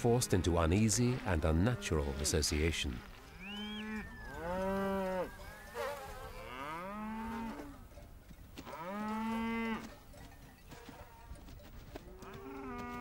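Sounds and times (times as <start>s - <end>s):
cattle mooing: 3.1s - 7.8s, 8.6s - 9.9s, 12.1s - 13.0s.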